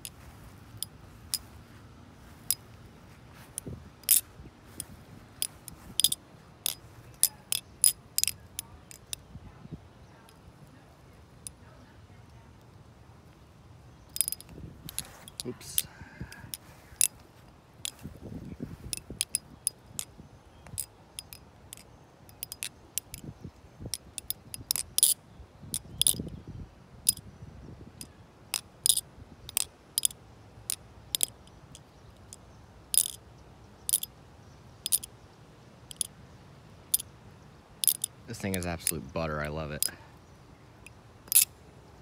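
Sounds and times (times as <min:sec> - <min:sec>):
butterfly knife metal clicks: 0:05.4 - 0:09.3, 0:14.1 - 0:15.9, 0:18.9 - 0:23.3, 0:23.9 - 0:26.3, 0:28.5 - 0:33.2, 0:33.8 - 0:34.1, 0:34.8 - 0:35.1, 0:35.9 - 0:36.1, 0:37.8 - 0:39.0, 0:40.8 - 0:41.6.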